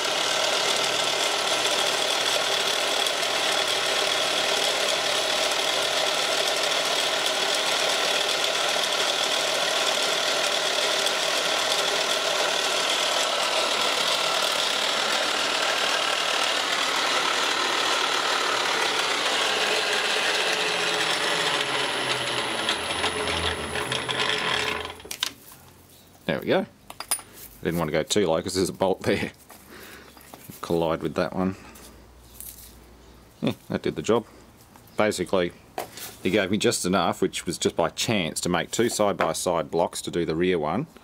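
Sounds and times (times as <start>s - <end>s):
milling machine cutting whirr: 0.0s - 25.2s
spindle winding down: 0.0s - 25.3s.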